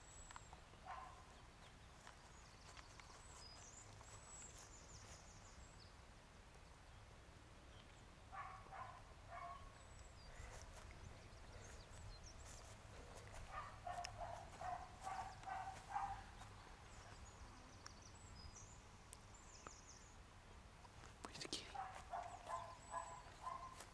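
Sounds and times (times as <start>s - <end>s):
birds chirping faintly: 0.0s - 23.9s
distant dog barking: 0.8s - 1.3s, 8.3s - 10.6s, 13.2s - 16.5s, 21.7s - 23.9s.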